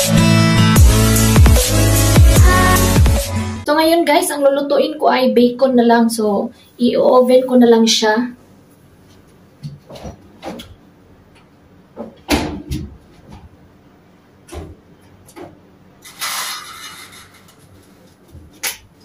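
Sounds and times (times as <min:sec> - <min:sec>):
oven clicks and knocks: 0:12.0 - 0:13.5.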